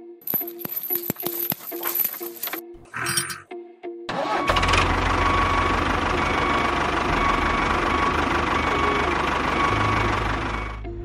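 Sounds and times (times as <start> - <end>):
tractor engine rumbling: 4.1 - 11.0.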